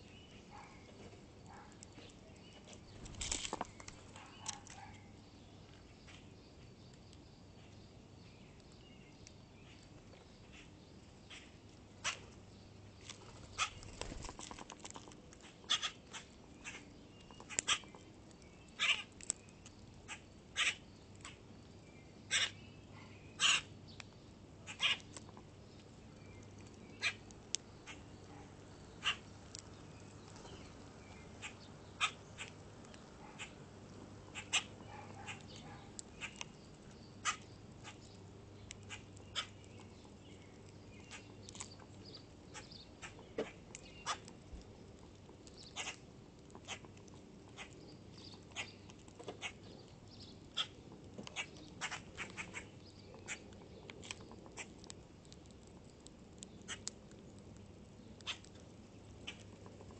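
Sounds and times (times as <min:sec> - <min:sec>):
grackles clicking and chacking: 0:13.1 - 0:18.1, 0:50.6 - 0:59.9.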